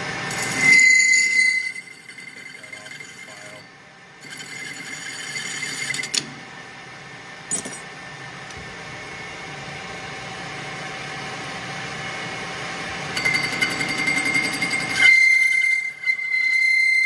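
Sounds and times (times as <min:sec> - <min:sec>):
metal lathe running: 0:00.0 - 0:06.2, 0:12.9 - 0:17.0
metal screeching: 0:00.3 - 0:03.6, 0:13.2 - 0:17.0.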